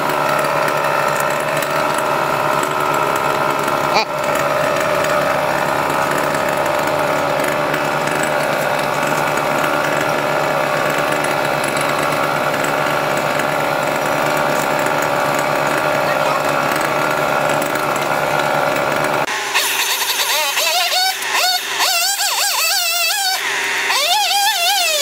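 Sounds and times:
large engine droning: 0.0 - 25.0.

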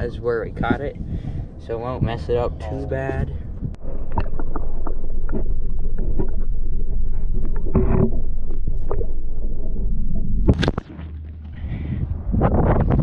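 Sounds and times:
low underwater rumble: 0.0 - 13.0
water splash: 7.4 - 11.8.

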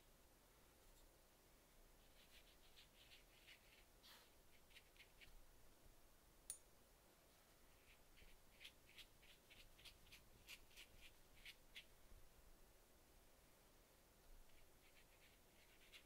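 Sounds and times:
scratchy brush strokes: 2.0 - 5.4, 7.2 - 12.0, 14.3 - 16.0.

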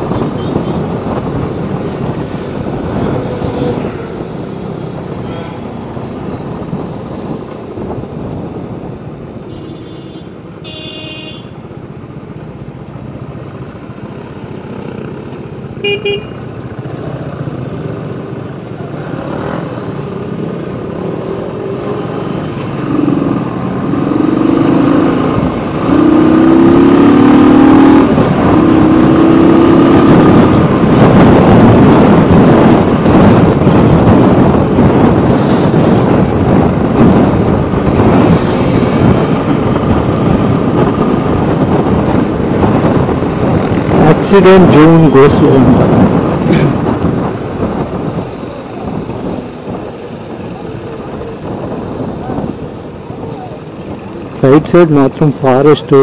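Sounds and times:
road noise: 0.0 - 56.0
vehicle horns honking: 5.2 - 5.7, 9.5 - 11.6, 15.8 - 16.4
motorcycle engine: 13.1 - 44.9.

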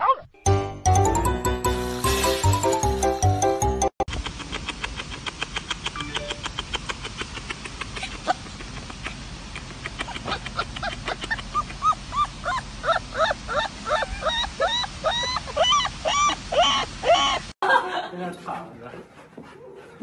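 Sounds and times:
puppy yipping: 10.1 - 17.4.

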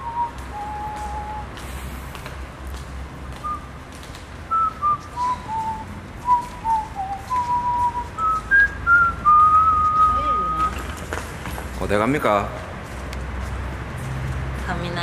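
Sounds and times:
person whistling a tune: 0.0 - 1.6, 4.5 - 10.9.

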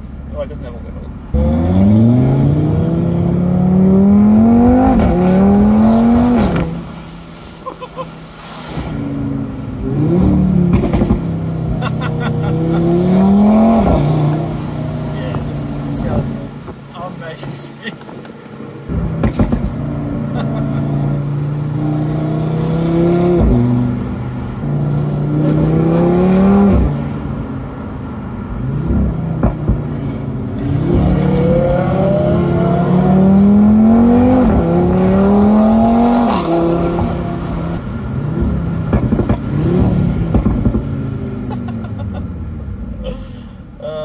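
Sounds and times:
car engine accelerating hard: 1.3 - 7.5, 8.8 - 16.7, 18.8 - 43.0.

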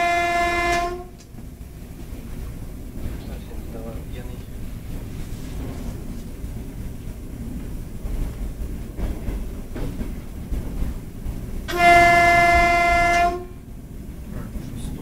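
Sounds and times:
electric train horn blast: 0.0 - 1.2, 11.7 - 13.7
train running rumble: 0.0 - 15.0.

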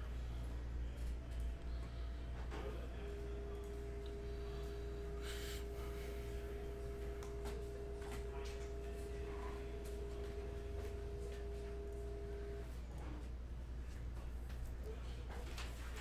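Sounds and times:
low hum: 0.0 - 12.8
steady tone: 3.0 - 12.7
faint higher tone: 3.1 - 12.7.

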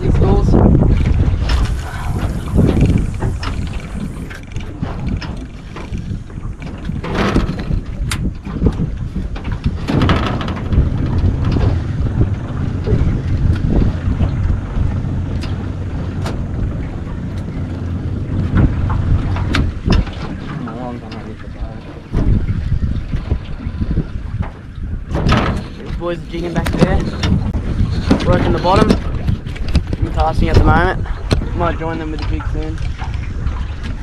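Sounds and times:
wind buffeting microphone: 0.0 - 34.0
noisy bursts: 0.9 - 7.7.

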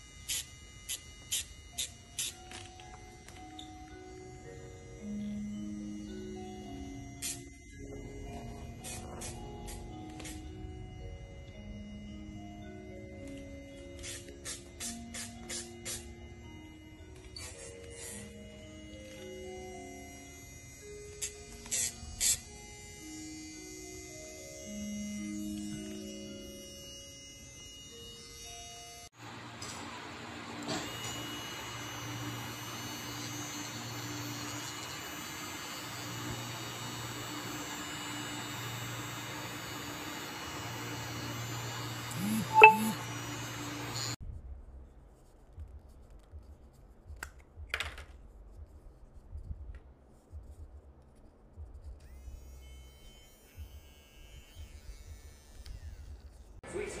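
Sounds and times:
thin high whine: 0.0 - 44.2, 51.2 - 56.6
nail grinder motor humming: 13.3 - 44.2, 52.0 - 56.6.

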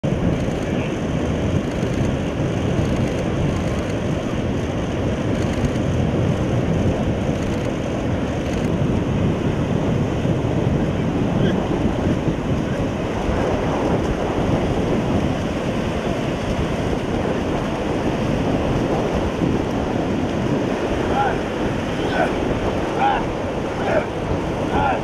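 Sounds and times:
wind noise on microphone: 0.0 - 25.0
ocean surf breaking: 0.1 - 25.0.

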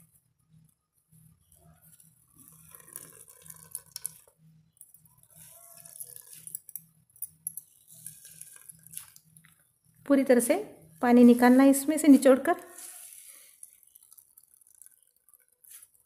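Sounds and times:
water trickling into a bowl: 0.6 - 10.0, 12.8 - 16.0.

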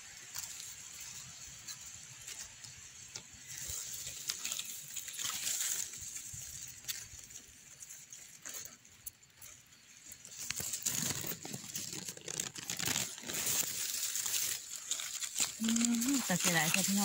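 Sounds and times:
grass and dry leaves rustling: 0.0 - 17.0.

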